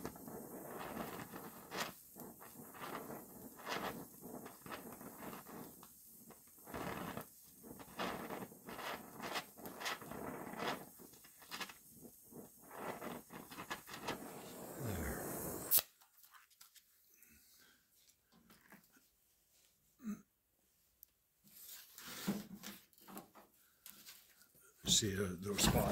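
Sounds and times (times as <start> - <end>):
welding torch flame hissing: 0.0 - 15.9, 24.9 - 25.9
sharp torch pops: 12.6 - 15.9.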